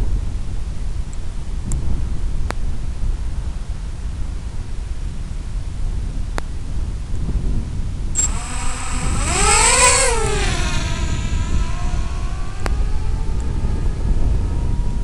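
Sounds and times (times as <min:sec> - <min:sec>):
wind rumble on microphone: 0:00.0 - 0:15.0
drone motors whining: 0:08.2 - 0:15.0.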